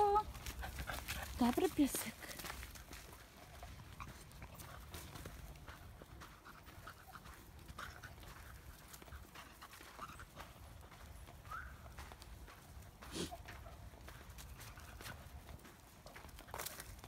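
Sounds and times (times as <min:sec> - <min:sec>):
footsteps on dry leaves: 0:00.0 - 0:17.0.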